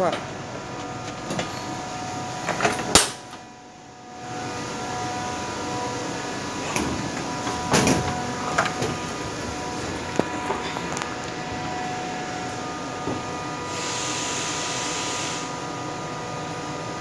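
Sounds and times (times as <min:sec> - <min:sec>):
machinery hum: 0:00.0 - 0:17.0
machinery whining tones: 0:00.7 - 0:17.0.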